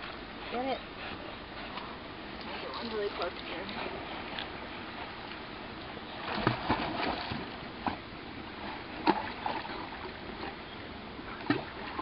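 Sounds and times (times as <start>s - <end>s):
rocks splashing into water: 6.3s - 7.5s.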